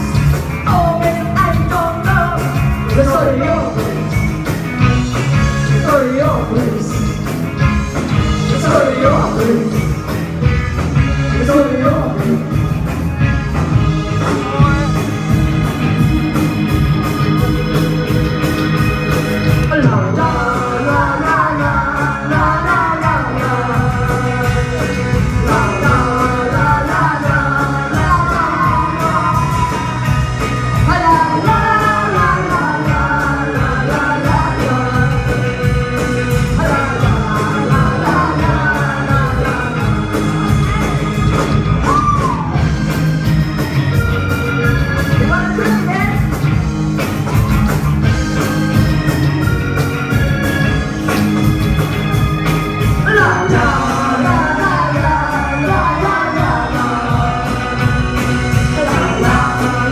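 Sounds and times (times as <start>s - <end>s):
woman singing lead vocals: 0.0s - 4.2s, 5.3s - 7.2s, 8.1s - 10.2s, 11.0s - 12.6s, 19.6s - 42.7s, 53.0s - 59.9s
live rock band playing: 0.0s - 59.9s.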